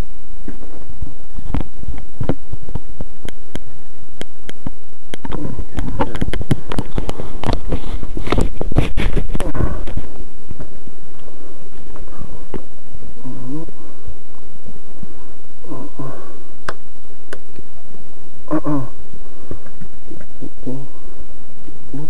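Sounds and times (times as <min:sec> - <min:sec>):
distorted engine buzz: 0:00.0 - 0:22.0
clicks and rustles of handling: 0:04.5 - 0:10.7.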